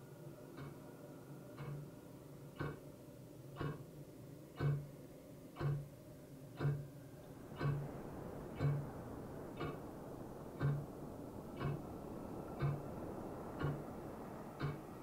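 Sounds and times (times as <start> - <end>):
clock ticking: 0.6 - 0.8, 1.6 - 1.8, 2.6 - 2.8, 3.6 - 3.9, 4.6 - 4.9, 5.6 - 5.9, 6.6 - 6.9, 7.6 - 7.9, 8.5 - 8.9, 9.6 - 9.8, 10.6 - 10.9, 11.5 - 11.9, 12.5 - 12.9, 13.6 - 13.9, 14.5 - 14.9.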